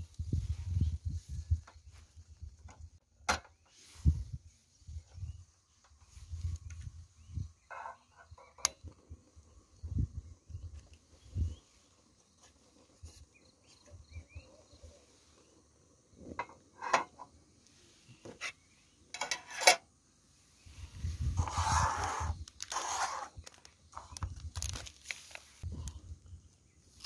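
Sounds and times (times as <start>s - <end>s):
insects chirring faintly: 0.2s - 27.0s
rustling: 20.8s - 25.6s.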